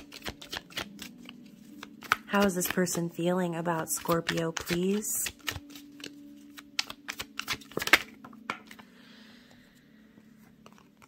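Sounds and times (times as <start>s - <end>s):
cards being shuffled: 0.0s - 3.2s, 3.8s - 8.8s.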